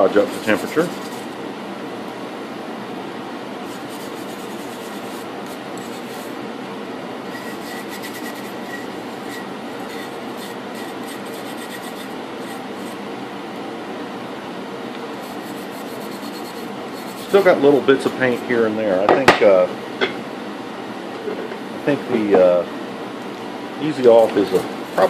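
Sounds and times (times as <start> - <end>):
brush scrubbing metal part: 0.0 - 1.4, 3.6 - 6.4, 7.3 - 13.0, 15.2 - 18.6
heater rushing noise: 0.0 - 25.0.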